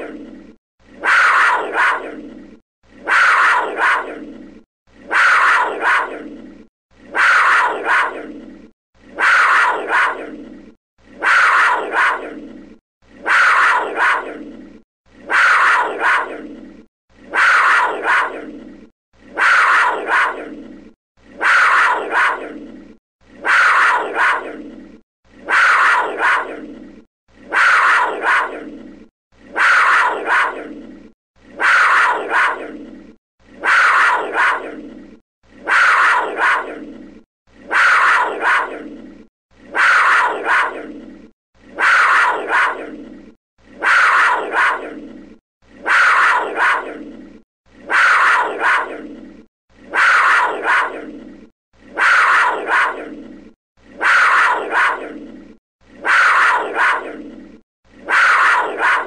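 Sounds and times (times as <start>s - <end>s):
big cat call: 1.0s - 2.2s, 3.0s - 4.2s, 5.1s - 6.3s, 7.1s - 8.4s, 9.2s - 10.3s, 11.2s - 12.4s, 13.2s - 14.4s, 15.3s - 16.4s, 17.3s - 18.5s, 19.3s - 20.6s, 21.4s - 22.6s, 23.4s - 24.6s, 25.4s - 26.7s, 27.5s - 28.7s, 29.5s - 30.7s, 31.6s - 32.8s, 33.6s - 34.8s, 35.6s - 36.8s, 37.7s - 38.9s, 39.7s - 41.0s, 41.8s - 43.0s, 43.8s - 45.0s, 45.8s - 47.0s, 47.9s - 49.0s, 49.9s - 51.1s, 52.0s - 53.1s, 54.0s - 55.2s, 56.0s - 57.2s, 58.1s - 59.0s.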